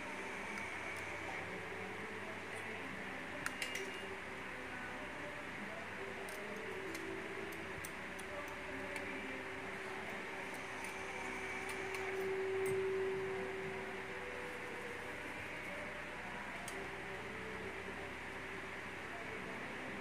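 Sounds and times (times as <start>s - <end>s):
fan-like hum: 0.0s - 20.0s.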